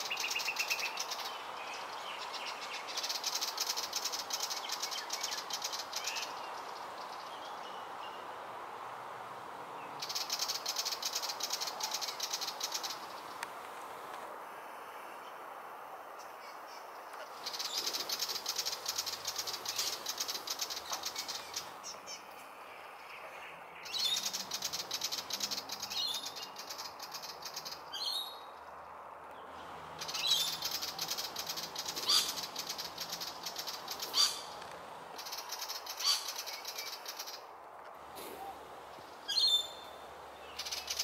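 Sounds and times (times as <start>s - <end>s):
bird chattering rattle: 10.0s - 13.1s, 17.4s - 21.7s, 23.9s - 27.8s, 30.0s - 34.6s
short sharp bird calls: 30.0s - 34.6s.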